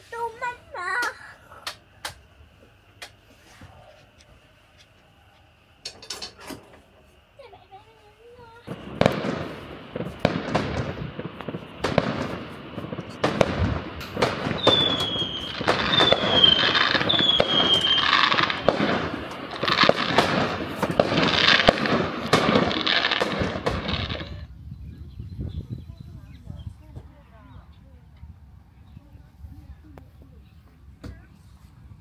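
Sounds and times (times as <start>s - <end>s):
fireworks banging: 0.0s - 24.5s
fireworks crackling: 0.0s - 24.6s
falling firework whistles: 8.2s - 24.5s.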